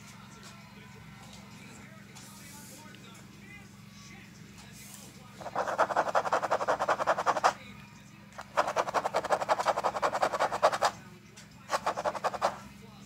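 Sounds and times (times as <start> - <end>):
puppy panting rapidly: 11.7 - 12.6.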